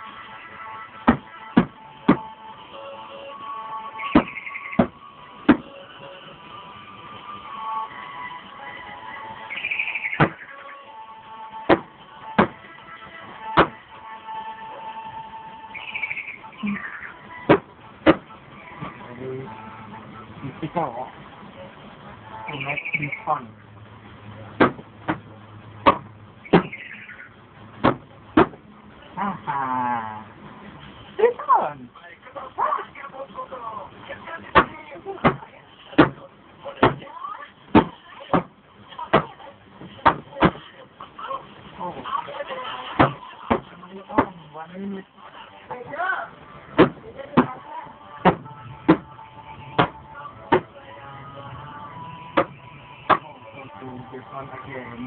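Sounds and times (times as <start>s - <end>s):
faint background music: 0.0s - 55.0s
sharp knocks: 4.2s - 5.7s, 11.7s - 12.6s, 13.6s - 13.8s, 24.6s - 26.8s, 27.8s - 28.6s.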